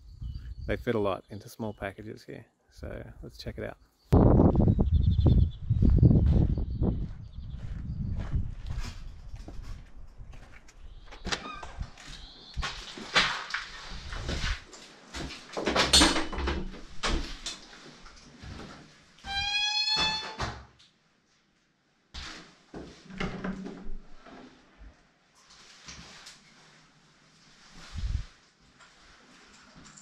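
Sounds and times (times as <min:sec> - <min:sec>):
door squeak: 0:11.2 - 0:11.9, 0:19.2 - 0:20.6.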